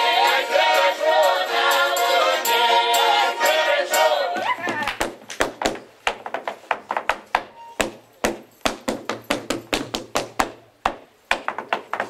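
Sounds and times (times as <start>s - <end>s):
feet stamping on wooden stage: 4.4s - 12.0s.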